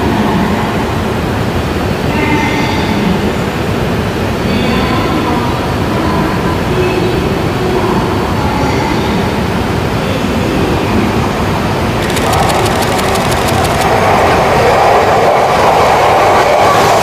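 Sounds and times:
rapid wheel clicks: 12.0 - 14.4.

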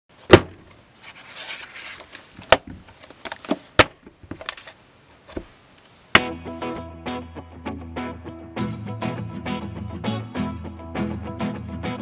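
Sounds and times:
sliding rustle: 0.9 - 3.7.

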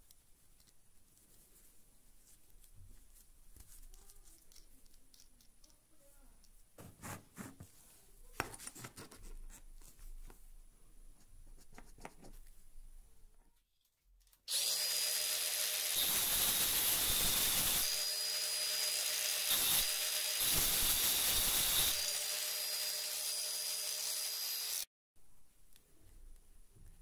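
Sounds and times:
angle grinder cutting steel bolt: 14.5 - 24.9.

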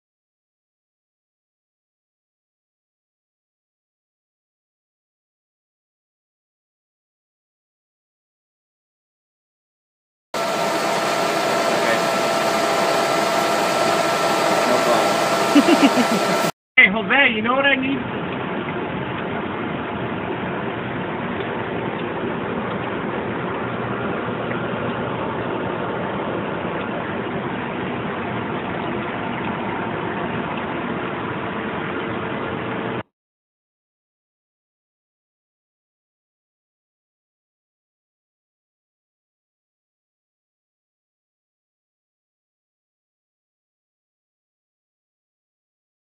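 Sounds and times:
coolant spraying: 10.4 - 16.5, 17.1 - 33.0
metal lathe running: 10.4 - 16.5.

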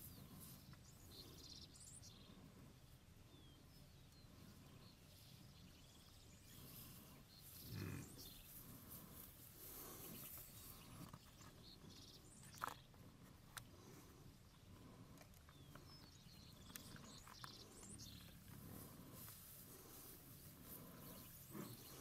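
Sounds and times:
grass torn and chewed: 6.5 - 22.0
faint bird chirps: 13.8 - 19.2, 19.8 - 22.0.

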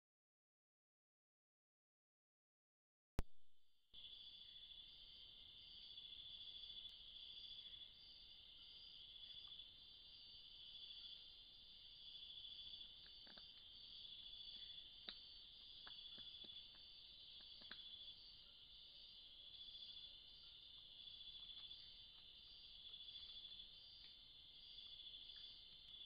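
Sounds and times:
insects trilling: 4.0 - 26.0
faint sharp ticks: 23.1 - 24.2.

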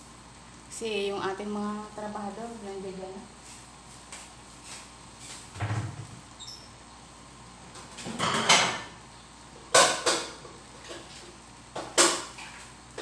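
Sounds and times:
dishes and cabinets clanking: 8.0 - 9.0, 9.7 - 11.2.

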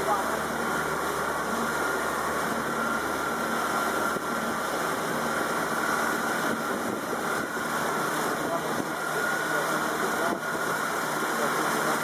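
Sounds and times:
boat engine running: 0.0 - 12.0
rush of wind and water: 0.0 - 12.0.

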